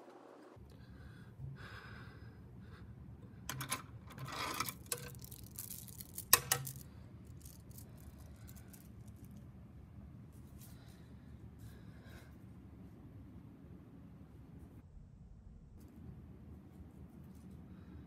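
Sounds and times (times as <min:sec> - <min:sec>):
pearl necklace rattling: 0:03.6 - 0:09.4.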